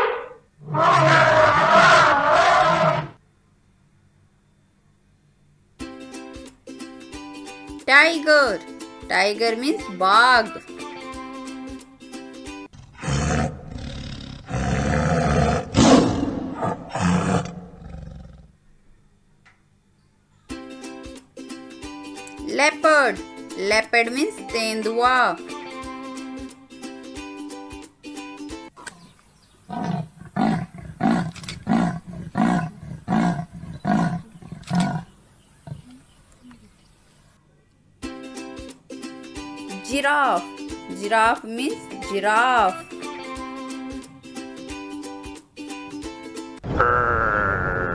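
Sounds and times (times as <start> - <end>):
tiger roaring and growling: 0.0 - 3.2, 12.7 - 18.5, 29.7 - 36.0
leopard hoarse grunts: 29.7 - 36.0.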